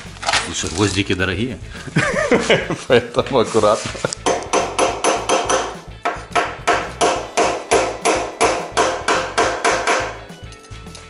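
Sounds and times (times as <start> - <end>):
hammer tapping metal rivets: 4.2 - 10.8.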